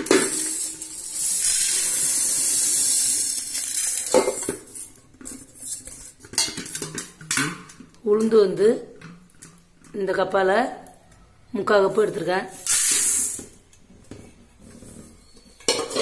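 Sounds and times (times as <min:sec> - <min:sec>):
lentils pouring into steel cup: 0:00.0 - 0:06.2, 0:12.5 - 0:13.6
lentils rattling in hand: 0:00.2 - 0:06.2.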